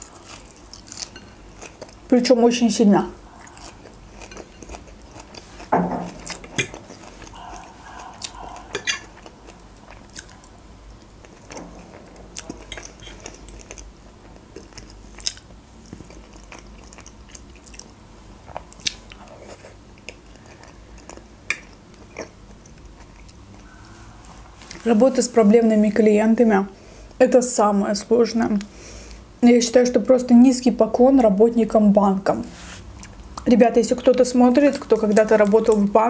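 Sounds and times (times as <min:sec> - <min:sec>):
person chewing food: 0:00.0 - 0:02.1, 0:03.2 - 0:17.9, 0:18.5 - 0:24.8.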